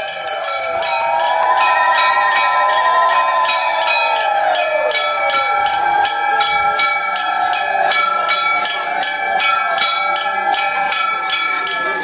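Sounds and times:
bell rung rapidly: 0.0 - 12.0.

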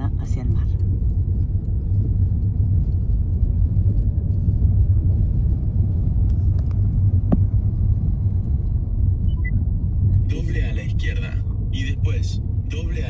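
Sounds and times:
car driving on stone paving: 0.6 - 13.0.

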